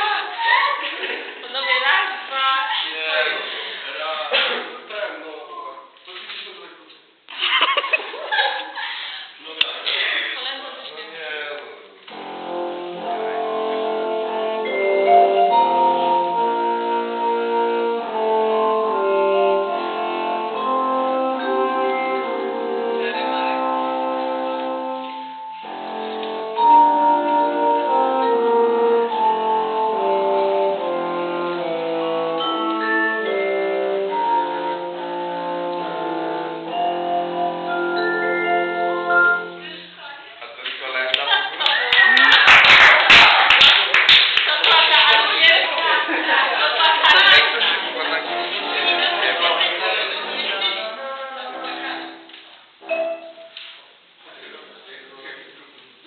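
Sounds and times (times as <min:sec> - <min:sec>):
marimba and saxophone ensemble: 0:12.1 - 0:40.1, 0:46.8 - 0:53.7.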